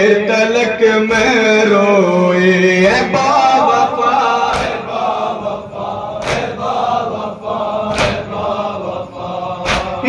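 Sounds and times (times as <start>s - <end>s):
men chanting a lament: 0.0s - 10.0s
unison chest-beats: 1.1s - 1.6s, 4.2s - 10.0s.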